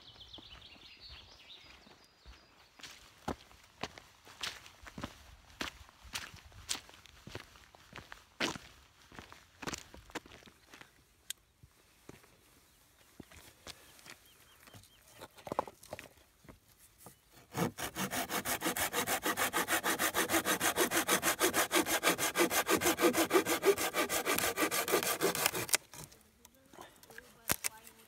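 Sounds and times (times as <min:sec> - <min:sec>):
saw cutting branch: 0:17.4 - 0:26.2.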